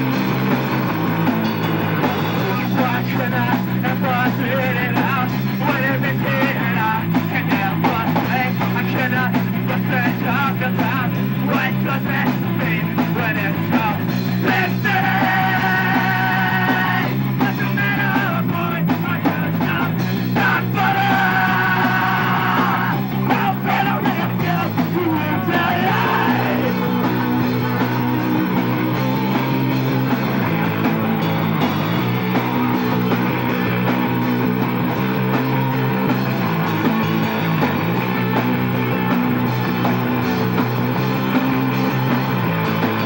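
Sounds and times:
bass guitar: 0:00.0 - 0:43.0
distorted electric guitars: 0:00.0 - 0:43.0
drum kit: 0:00.0 - 0:43.0
singer shouting vocals: 0:02.3 - 0:29.4.

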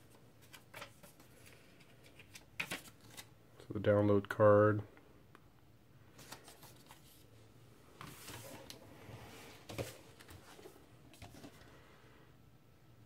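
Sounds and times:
paper rustling: 0:00.0 - 0:03.3, 0:06.2 - 0:07.3, 0:08.0 - 0:11.7.

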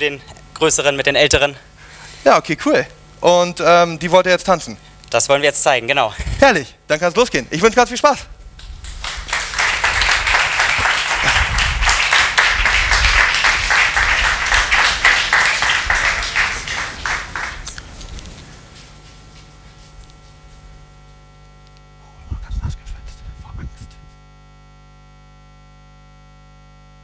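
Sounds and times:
faint mains hum: 0:00.0 - 0:27.0
applause: 0:08.6 - 0:18.9.

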